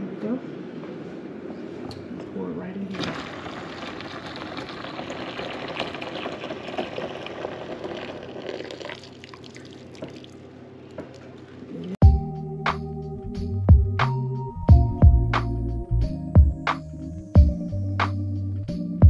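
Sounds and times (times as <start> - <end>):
hot water pouring into bucket: 2.9 - 10.5
background music: 12.0 - 19.0.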